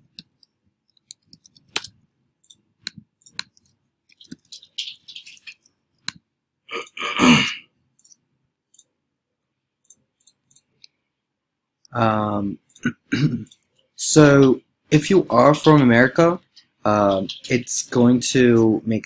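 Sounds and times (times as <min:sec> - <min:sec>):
computer keyboard typing: 0:00.0 - 0:06.2, 0:17.0 - 0:17.7
person coughing: 0:06.7 - 0:07.6, 0:12.8 - 0:13.6.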